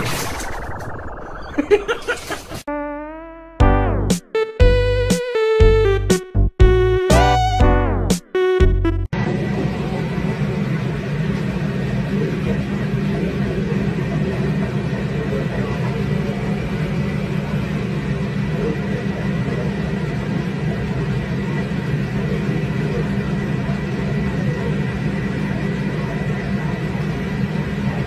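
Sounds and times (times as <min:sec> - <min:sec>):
machine rumbling: 0:00.0 - 0:02.6.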